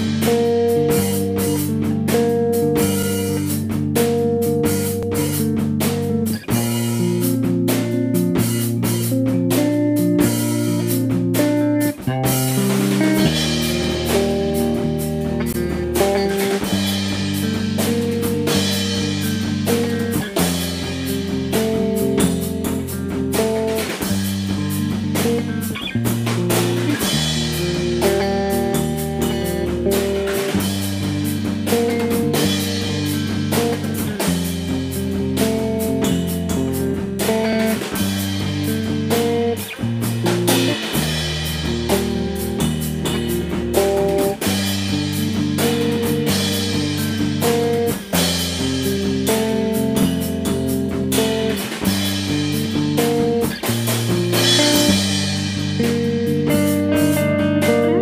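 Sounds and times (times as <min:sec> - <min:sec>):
bass line: 0:00.0 - 0:58.0
drum kit beat: 0:00.0 - 0:58.0
guitar: 0:00.0 - 0:58.0.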